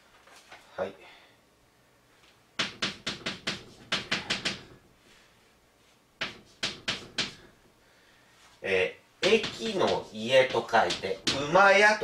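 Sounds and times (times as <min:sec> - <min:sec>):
chalk tapping on blackboard: 0:02.6 - 0:04.8, 0:06.2 - 0:07.5, 0:09.2 - 0:11.6.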